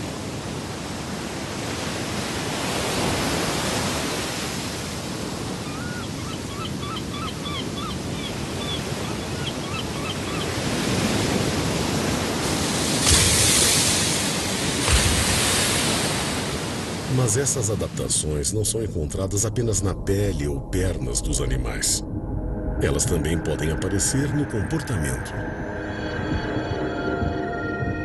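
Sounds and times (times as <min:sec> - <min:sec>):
ocean surf on rocky shore: 0:00.0 - 0:18.3
wave crashing: 0:10.8 - 0:17.9.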